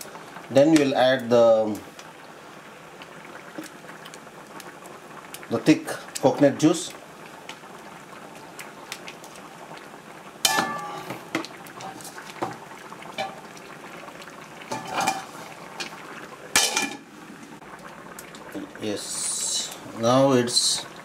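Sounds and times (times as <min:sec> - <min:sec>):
curry simmering in a pan: 0:00.0 - 0:21.0
metal lid clanging on pan: 0:10.4 - 0:11.2, 0:13.2 - 0:13.4, 0:14.7 - 0:15.4, 0:16.5 - 0:17.1
ladle clinking against pan: 0:10.5 - 0:11.1.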